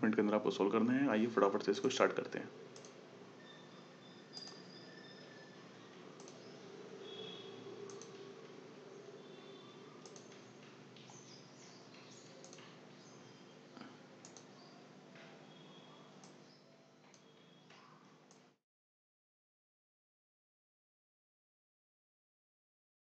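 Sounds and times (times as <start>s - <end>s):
soft sharp clicks: 2.8s - 3.0s, 4.3s - 4.7s, 5.9s - 8.6s, 10.0s - 12.9s, 13.8s - 15.4s, 16.2s - 16.4s, 17.0s - 18.5s
faint high-pitched chirps: 3.4s - 10.4s, 11.1s - 18.2s.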